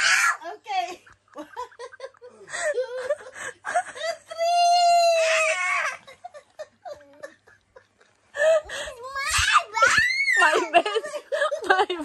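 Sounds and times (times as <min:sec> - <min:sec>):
person giggling and laughing: 0:01.1 - 0:05.0, 0:05.7 - 0:09.0.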